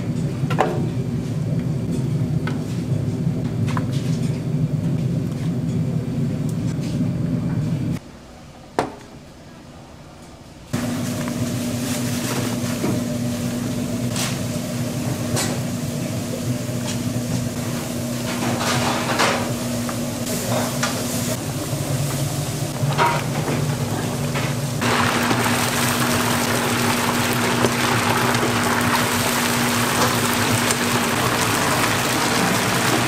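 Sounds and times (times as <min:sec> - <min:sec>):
utensils stirring and clattering: 0:10.8 - 0:33.0
food sizzling in a pan: 0:24.8 - 0:33.0.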